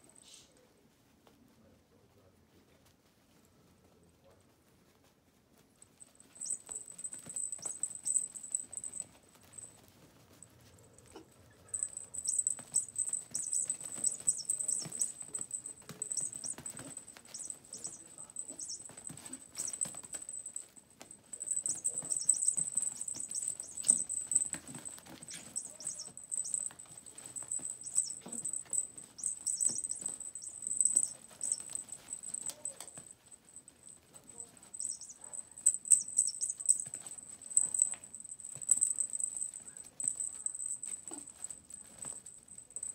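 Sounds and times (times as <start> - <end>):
puppies' paws pattering: 0.0 - 42.9
high-pitched ringing tone: 6.2 - 9.7, 11.6 - 33.0, 34.4 - 42.9
scratching on pads: 10.9 - 42.9.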